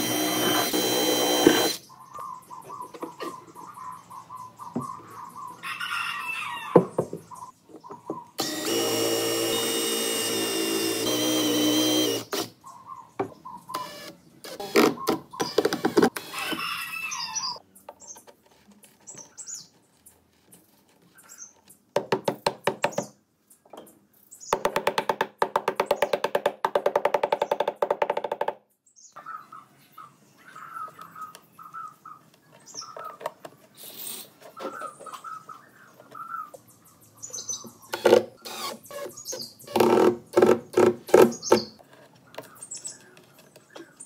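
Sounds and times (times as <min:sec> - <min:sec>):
impact driver driving screws: 0:00.0 - 0:01.8.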